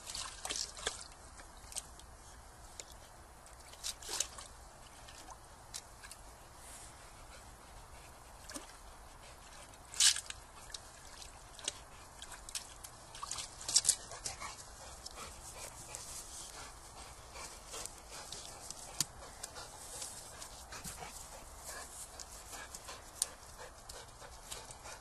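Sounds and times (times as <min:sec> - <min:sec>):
dog splashing water: 0:00.0 - 0:01.9, 0:09.4 - 0:16.1
water dribbling: 0:00.0 - 0:02.1, 0:09.4 - 0:16.0.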